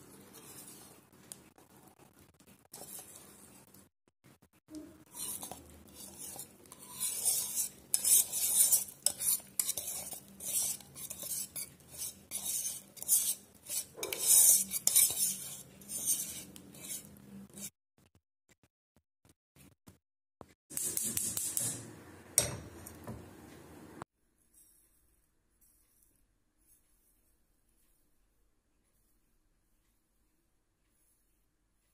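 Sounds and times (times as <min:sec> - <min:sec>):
spoon scraping cookware: 0:00.0 - 0:01.0, 0:02.7 - 0:03.4, 0:05.1 - 0:17.7.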